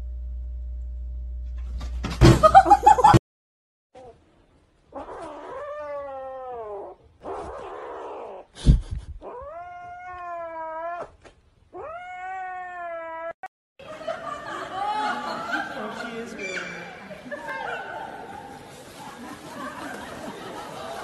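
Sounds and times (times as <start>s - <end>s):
kitten yowling meows: 5.0s - 8.5s, 9.2s - 13.4s.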